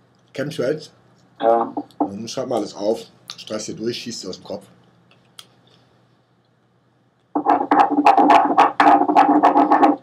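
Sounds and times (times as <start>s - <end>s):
pen scribbling on paper: 7.4s - 10.0s.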